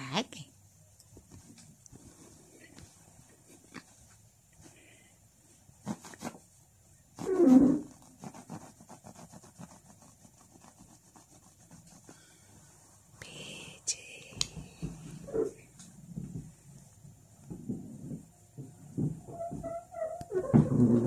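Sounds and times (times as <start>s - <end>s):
cat scratching blanket: 1.0s - 4.8s, 5.5s - 13.7s.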